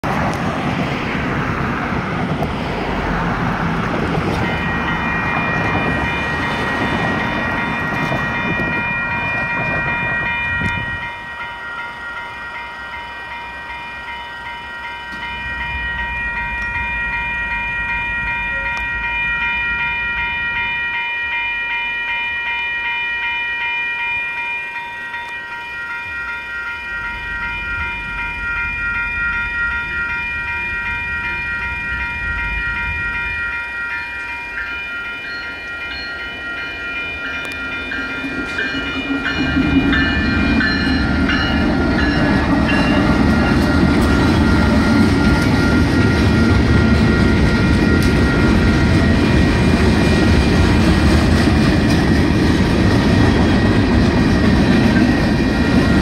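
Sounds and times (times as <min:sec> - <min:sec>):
road traffic passing: 0:00.0 - 0:10.9, 0:26.4 - 0:56.0
railroad crossing warning bells: 0:00.0 - 0:56.0.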